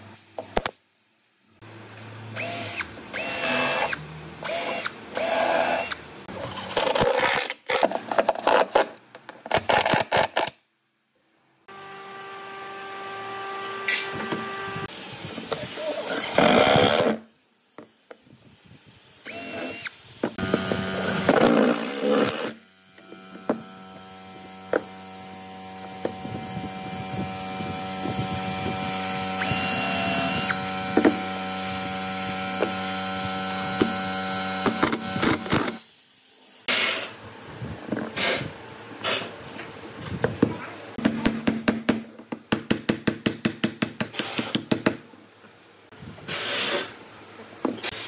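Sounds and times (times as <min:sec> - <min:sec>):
cordless drill whirring: 0:02.4 - 0:06.7, 0:13.4 - 0:17.2, 0:19.2 - 0:35.8.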